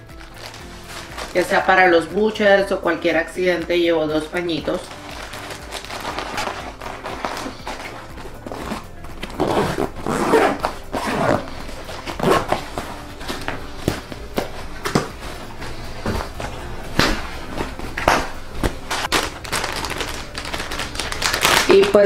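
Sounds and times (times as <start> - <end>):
fabric rustling: 0.1 - 2.4, 4.6 - 22.0
zipper being worked: 4.9 - 14.1.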